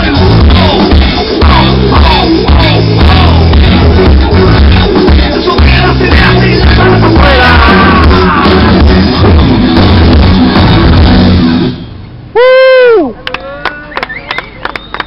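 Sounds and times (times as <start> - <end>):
rock band playing loud: 0.0 - 11.8.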